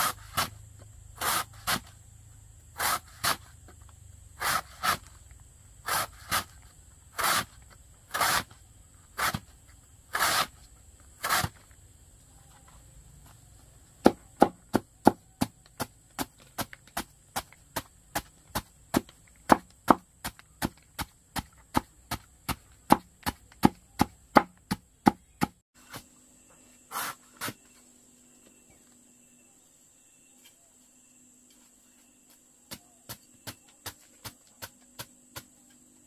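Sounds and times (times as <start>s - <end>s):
sharp chopping blows: 14.0s - 26.0s.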